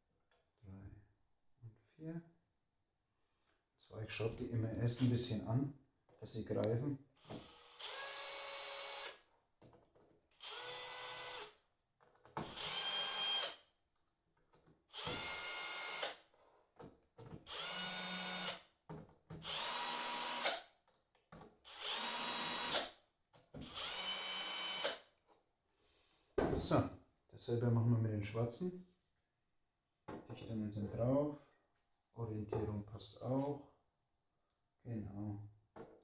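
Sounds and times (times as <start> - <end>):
electric drill driving screws: 7.2 - 9.2, 10.3 - 11.6, 12.4 - 13.6, 14.9 - 16.2, 17.4 - 18.7, 19.4 - 20.7, 21.6 - 23.0, 23.6 - 25.0.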